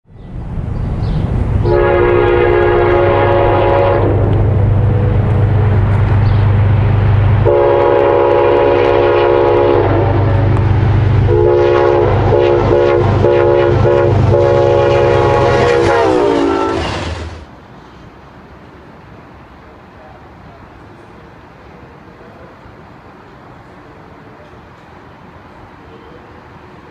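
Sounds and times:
train rumbling past: 0:00.1 - 0:26.9
train air horn blasts: 0:01.6 - 0:04.5, 0:07.4 - 0:10.5, 0:11.3 - 0:17.4.

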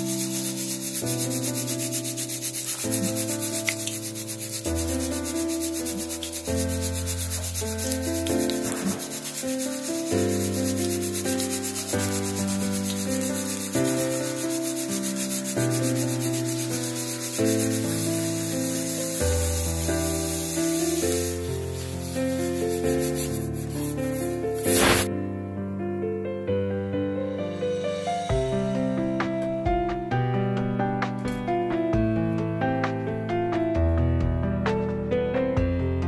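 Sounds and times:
batter sizzling in hot oil: 0:00.0 - 0:25.1.

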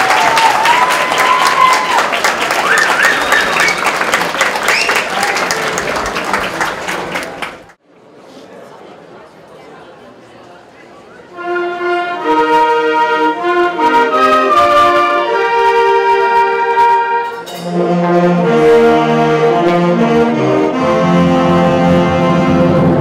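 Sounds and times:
wind band playing: 0:11.3 - 0:23.0.

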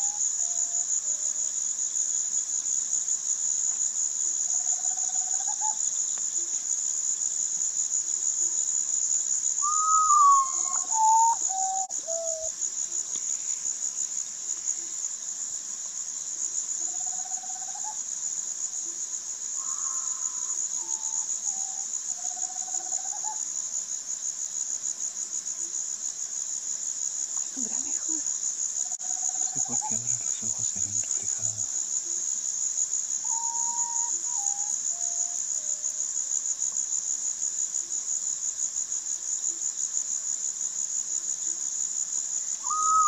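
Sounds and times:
high-pitched insect trill: 0:00.0 - 0:43.0
bird whistling descending notes: 0:09.6 - 0:12.5.

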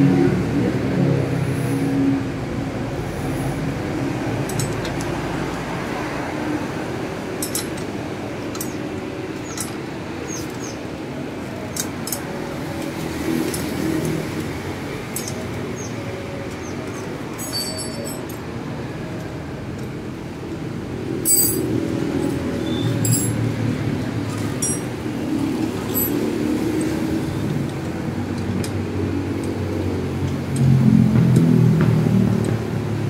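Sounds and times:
steady background noise: 0:00.0 - 0:33.0
bicycle parts clicking and tapping: 0:04.4 - 0:05.6, 0:07.4 - 0:10.7, 0:11.7 - 0:14.5, 0:15.1 - 0:15.6, 0:25.9 - 0:31.5.

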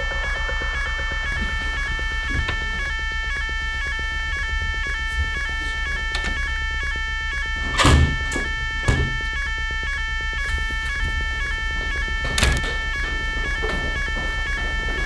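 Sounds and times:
fire alarm electronic tone: 0:00.0 - 0:15.0
door shutting: 0:01.3 - 0:03.0, 0:03.6 - 0:06.6, 0:07.6 - 0:09.5, 0:10.4 - 0:15.0
window banged shut: 0:07.6 - 0:09.4.

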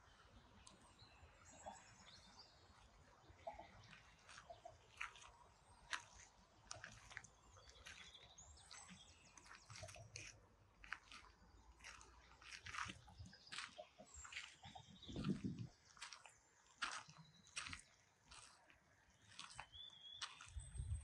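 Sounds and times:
faint bird chirps: 0:00.5 - 0:05.9
footsteps on a path: 0:03.5 - 0:21.0.

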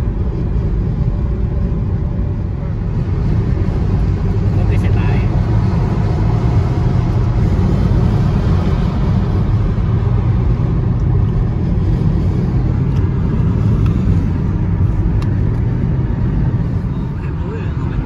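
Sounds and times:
car engine and tyre noise: 0:00.0 - 0:18.0.

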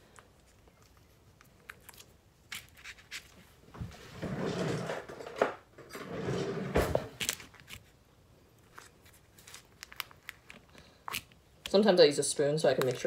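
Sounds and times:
foil pouch crinkling: 0:08.6 - 0:11.4.

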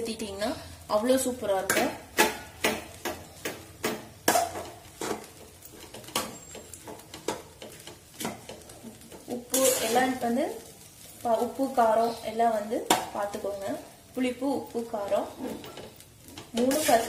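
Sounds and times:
metal spatula scraping a pot: 0:01.7 - 0:10.4, 0:15.2 - 0:17.0.

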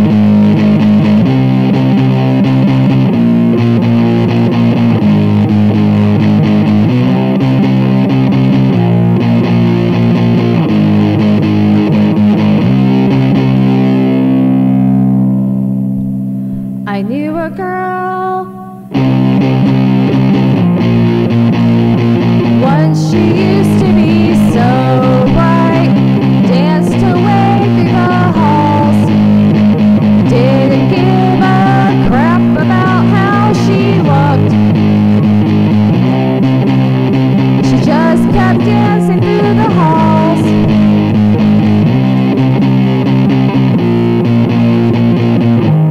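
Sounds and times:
distorted electric guitar riff: 0:00.0 - 0:45.9
lead guitar with bent notes: 0:00.0 - 0:45.9.

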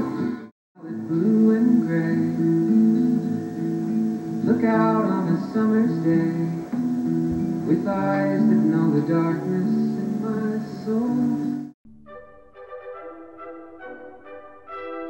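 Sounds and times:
strummed guitar music: 0:00.0 - 0:11.8.

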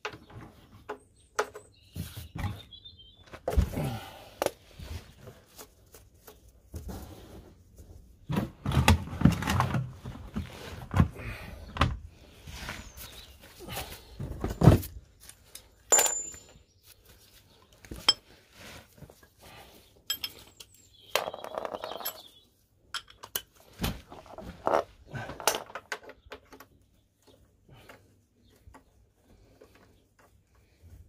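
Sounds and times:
metal tools clinking: 0:15.5 - 0:16.7, 0:20.0 - 0:23.5.

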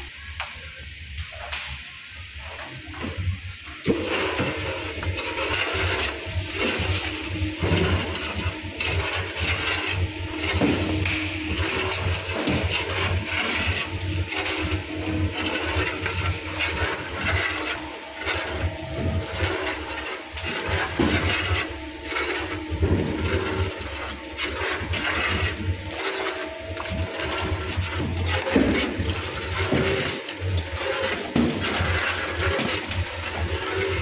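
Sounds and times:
mixer motor hum: 0:02.4 - 0:34.0
dough slapping and squelching: 0:03.9 - 0:34.0.

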